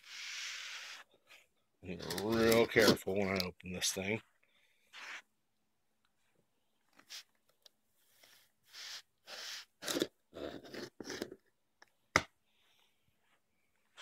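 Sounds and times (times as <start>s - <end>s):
file scraping packing tape: 8.3s - 11.4s.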